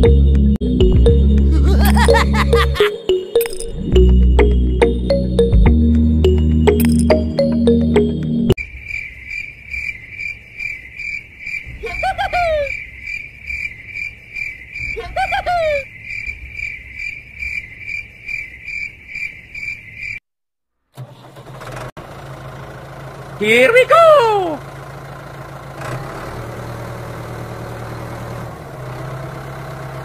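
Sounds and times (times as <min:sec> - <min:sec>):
insect chirping: 0:08.6 - 0:20.2.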